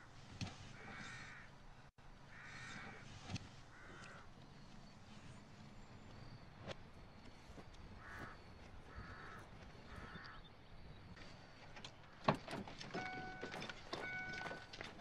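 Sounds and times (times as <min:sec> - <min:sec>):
crow cawing: 0:00.8 - 0:01.6, 0:02.3 - 0:04.3, 0:08.0 - 0:10.5.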